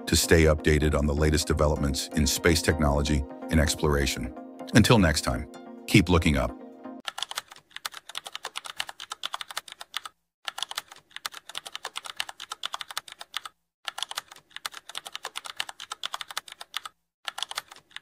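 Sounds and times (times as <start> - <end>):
computer keyboard typing: 7.0 - 18.0.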